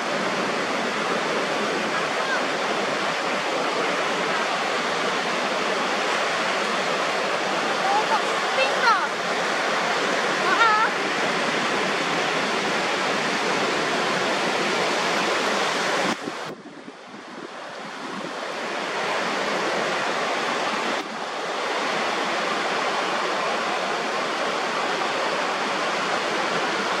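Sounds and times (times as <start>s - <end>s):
ocean surf breaking: 0.0s - 27.0s.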